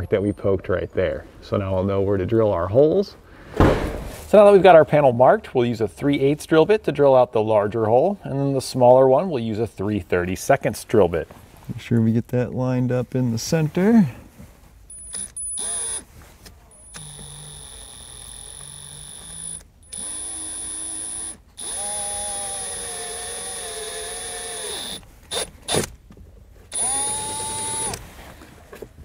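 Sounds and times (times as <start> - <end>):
power drill motor whining: 14.9 - 16.0, 16.8 - 25.9, 26.7 - 28.0.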